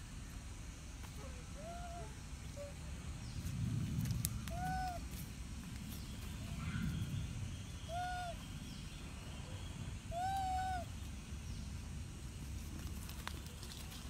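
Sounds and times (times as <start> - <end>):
hooting animal calls: 1.2 - 3.0, 6.5 - 8.6, 9.4 - 11.0
low rumble: 2.2 - 12.7.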